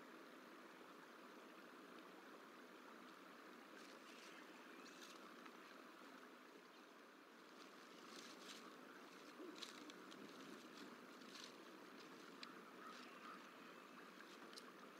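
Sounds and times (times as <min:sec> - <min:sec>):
faint outdoor hiss: 0:00.0 - 0:14.9
crackles of nest sticks: 0:07.6 - 0:13.1.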